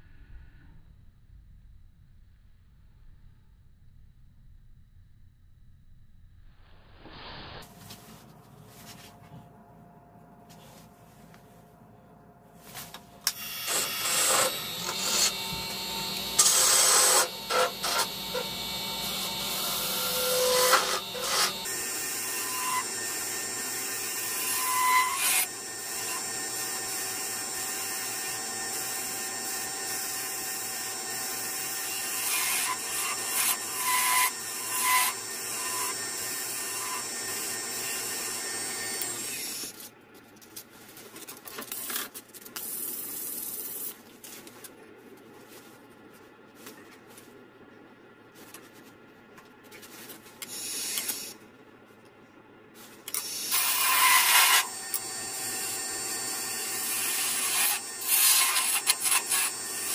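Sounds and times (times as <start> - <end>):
faint handling sounds: 7.6 - 13.2, 39.8 - 50.4
wood lathe gouge scraping: 13.7 - 29.1, 53.5 - 59.9.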